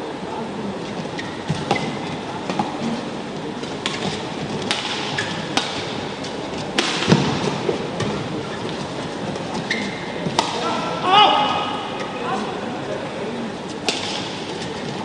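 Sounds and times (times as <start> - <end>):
shoes squeaking on court floor: 0.9 - 3.0, 5.1 - 5.6, 8.0 - 10.4
rackets striking shuttlecock: 3.7 - 7.5, 13.8 - 14.5.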